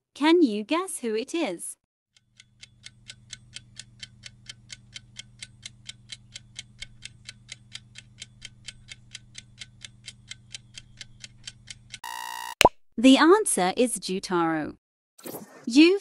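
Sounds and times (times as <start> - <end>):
clock ticking: 2.2 - 12.0.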